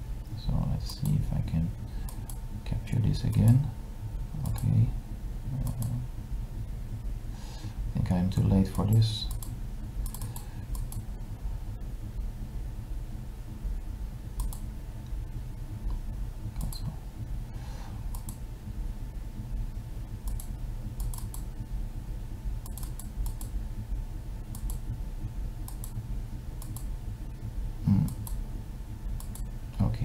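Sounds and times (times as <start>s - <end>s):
steady low hum: 0.0s - 30.0s
computer keys clicking: 0.8s - 1.2s, 2.0s - 2.4s, 3.2s - 3.6s, 4.4s - 4.8s, 5.6s - 6.0s, 8.6s - 11.0s, 14.4s - 14.7s, 16.6s - 16.9s, 18.1s - 18.4s, 20.2s - 21.5s, 22.6s - 23.6s, 24.5s - 24.8s, 25.6s - 26.0s, 26.6s - 26.9s, 28.0s - 28.4s, 29.2s - 29.5s.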